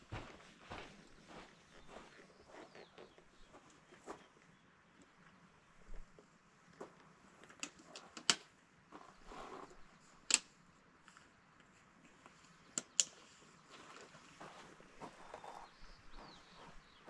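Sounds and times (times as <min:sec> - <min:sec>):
soft rustle: 0:08.9 - 0:10.2, 0:13.2 - 0:17.0.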